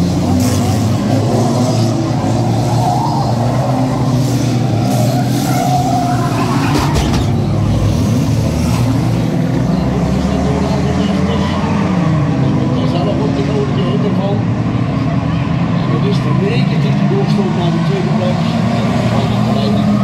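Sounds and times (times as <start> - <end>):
racing car engines: 0.0 - 20.0.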